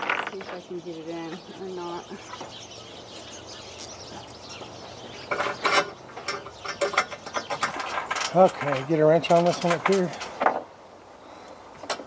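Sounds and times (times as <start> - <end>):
metal bolt and nut clinking: 3.4 - 4.6, 5.2 - 10.3.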